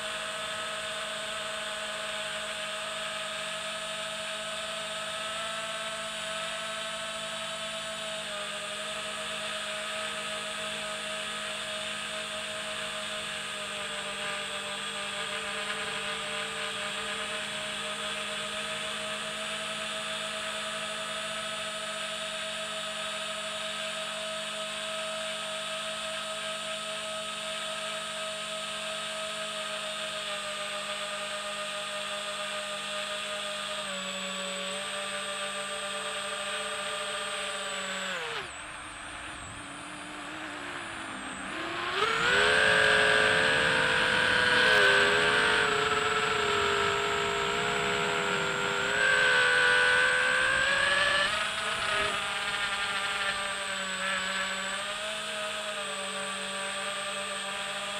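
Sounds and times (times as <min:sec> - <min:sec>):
drone propellers whining: 0:35.6 - 0:56.5.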